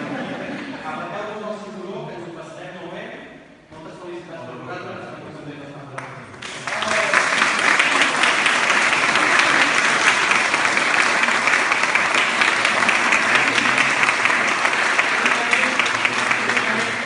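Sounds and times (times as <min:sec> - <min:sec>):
audience applause: 0:06.4 - 0:17.0.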